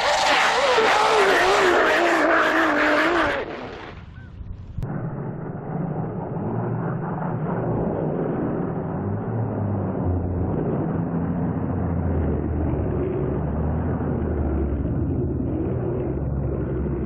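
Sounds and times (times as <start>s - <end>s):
toy vehicle motor drone: 0.0s - 3.9s.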